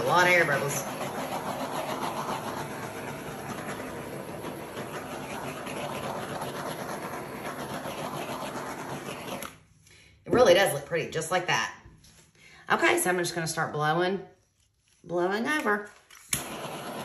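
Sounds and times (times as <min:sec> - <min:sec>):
torch flame hissing: 0:00.0 - 0:09.6, 0:16.3 - 0:17.0.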